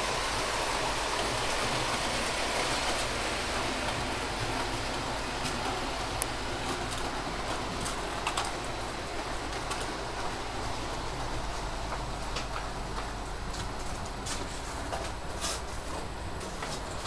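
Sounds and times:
model train rolling: 0.0s - 17.0s
wheels clicking over rail joints: 0.0s - 17.0s.

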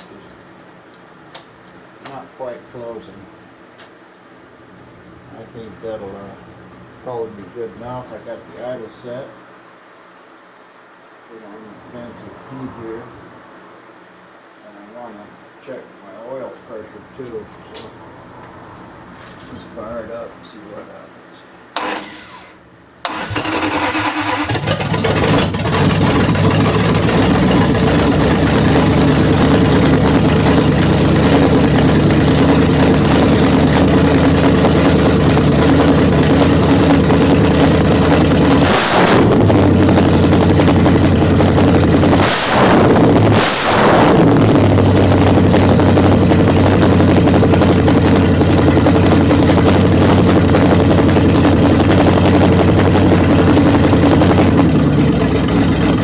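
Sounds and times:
car engine starting and idling: 21.7s - 56.0s.

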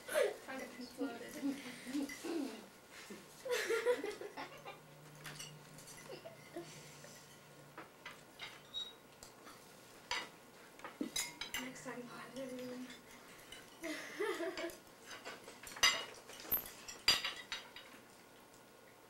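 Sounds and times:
cutlery clinking on plates: 5.2s - 7.5s, 9.5s - 11.7s, 12.4s - 13.8s, 14.5s - 18.0s.

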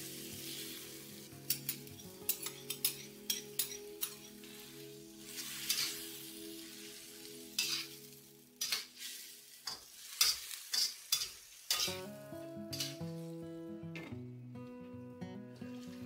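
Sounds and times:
food sizzling in a wok: 0.0s - 13.5s
soft background music: 0.0s - 16.0s
metal spatula scraping wok: 1.5s - 12.1s, 12.7s - 13.0s.

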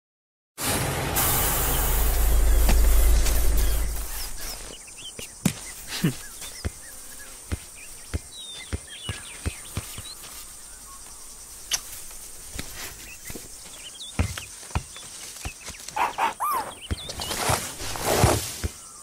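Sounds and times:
vehicle rumble: 0.6s - 4.8s
faint bird chirps: 12.9s - 17.6s.

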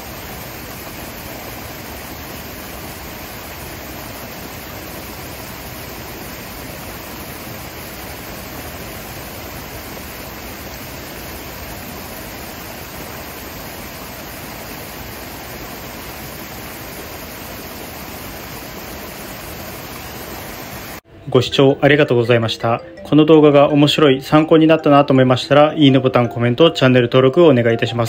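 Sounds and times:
water splashing down cascade: 0.0s - 21.0s.

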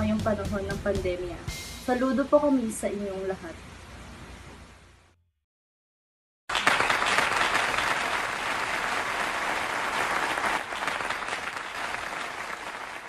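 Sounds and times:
crowd applauding: 6.5s - 13.0s.

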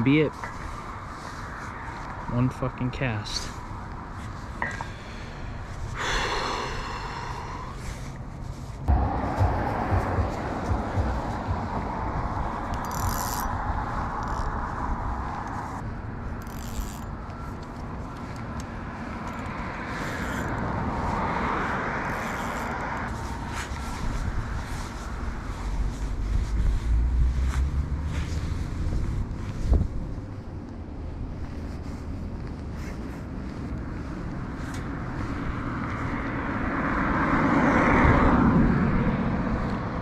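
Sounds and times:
car tyre noise: 0.0s - 38.5s
low rumble: 5.7s - 15.8s.

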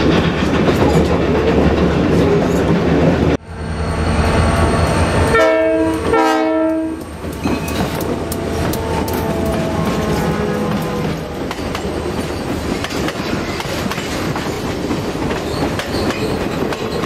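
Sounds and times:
train wheels clacking: 0.0s - 3.4s, 5.9s - 17.0s
diesel locomotive rumbling: 0.0s - 17.0s
multi-note air horn blasts: 5.3s - 7.0s.

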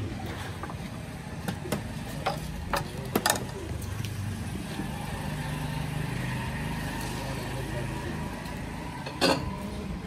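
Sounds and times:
crockery and utensils clinking: 9.0s - 9.6s.

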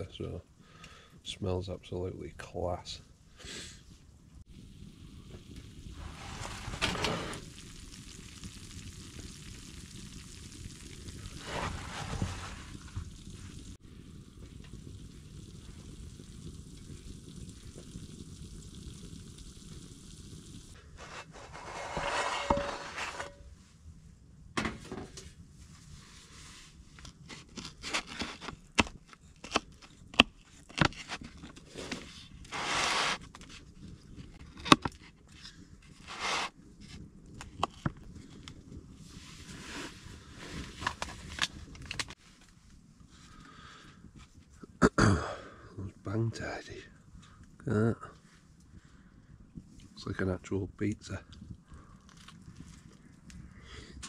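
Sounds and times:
pizza sizzling in skillet: 4.5s - 23.4s, 31.7s - 33.2s.

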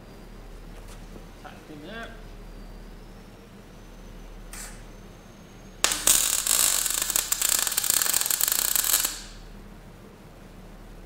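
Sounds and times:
welding arc crackling: 5.8s - 9.6s.

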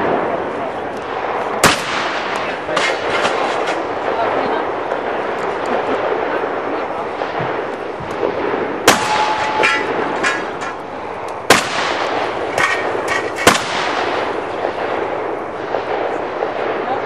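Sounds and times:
shotgun shots: 1.6s - 4.3s, 7.2s - 17.0s
metallic ringing: 8.9s - 11.0s.

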